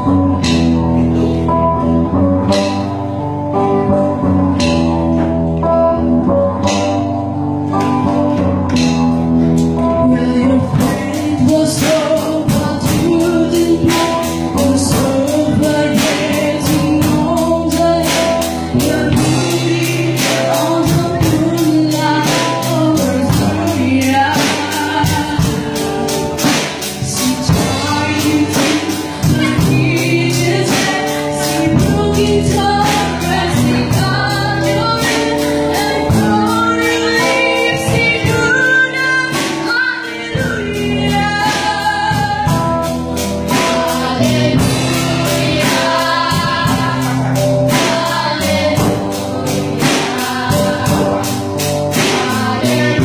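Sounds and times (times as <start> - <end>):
choir singing: 43.5 - 53.0.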